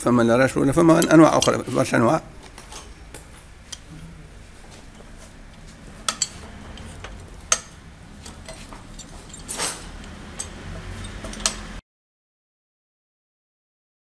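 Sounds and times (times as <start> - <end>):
metal scrape: 3.7 - 11.8
metal clinks and knocks: 4.6 - 11.8.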